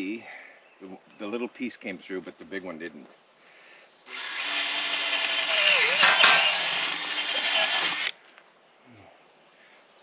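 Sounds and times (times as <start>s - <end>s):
cordless drill boring wood: 4.1s - 8.1s.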